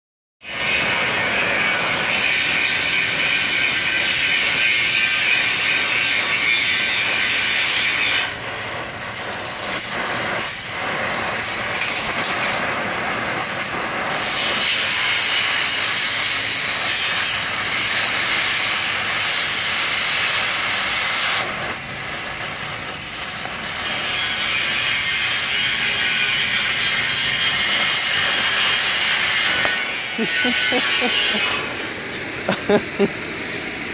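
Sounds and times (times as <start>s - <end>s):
torch flame hissing: 0.4s - 33.9s.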